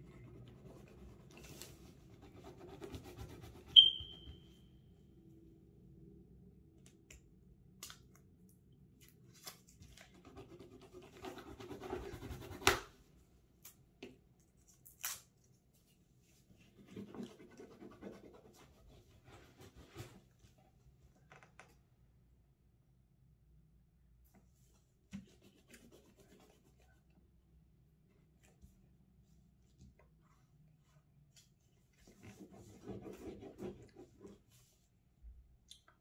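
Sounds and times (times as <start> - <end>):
marker scratching on paper: 32.1 - 34.4.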